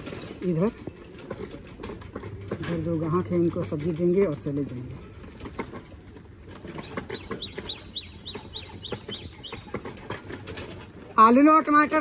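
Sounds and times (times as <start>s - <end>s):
light clicking and rattling: 0.0s - 12.0s
bird chirping: 6.7s - 10.0s.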